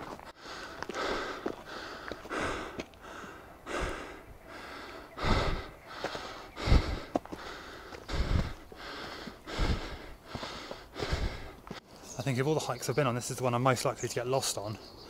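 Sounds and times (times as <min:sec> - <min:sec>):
footsteps on stones: 0:00.0 - 0:03.2, 0:05.9 - 0:09.4
person breathing hard: 0:00.0 - 0:11.9.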